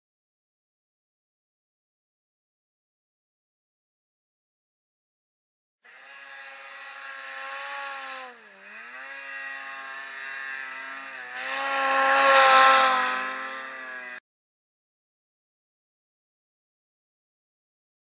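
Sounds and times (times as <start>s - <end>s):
snowmobile engine revving: 5.9s - 14.2s.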